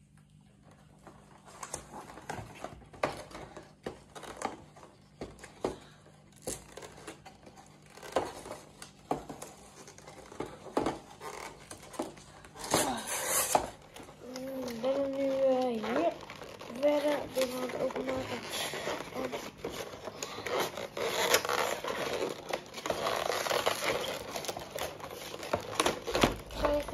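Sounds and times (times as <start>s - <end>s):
cardboard and wrapping crinkling: 0.0s - 26.9s.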